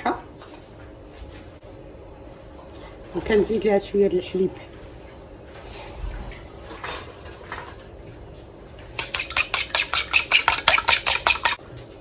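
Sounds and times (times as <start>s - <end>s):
fork ticking against plastic bowl: 9.0s - 11.6s.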